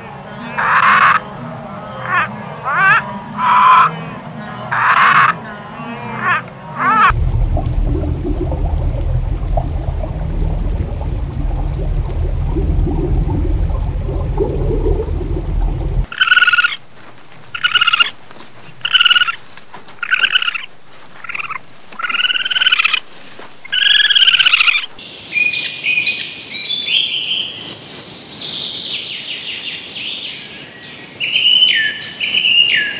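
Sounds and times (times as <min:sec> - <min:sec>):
steady low rumble: 0:07.1 - 0:16.1
short arched animal calls: 0:17.5 - 0:18.2, 0:18.8 - 0:23.0.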